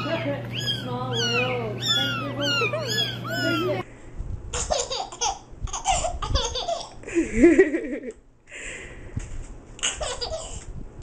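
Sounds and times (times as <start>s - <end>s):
kitten mewing: 0.0s - 3.8s
baby laughing: 4.5s - 8.2s, 9.8s - 10.7s.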